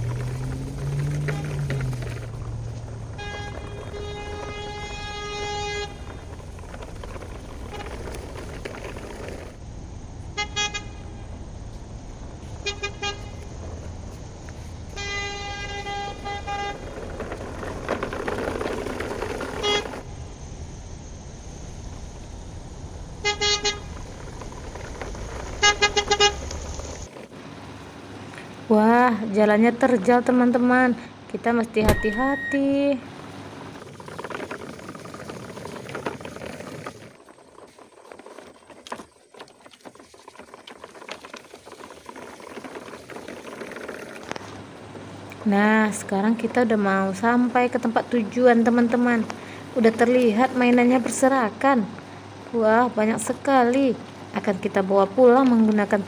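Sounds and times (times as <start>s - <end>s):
toy trucks rolling on crusted sand: 0.0s - 9.6s, 12.4s - 20.2s, 23.2s - 28.8s, 32.6s - 56.0s
vehicle horn honking: 3.1s - 6.2s, 10.3s - 11.3s, 12.6s - 13.4s, 14.9s - 17.0s, 19.6s - 20.0s, 23.2s - 23.9s, 25.6s - 26.5s.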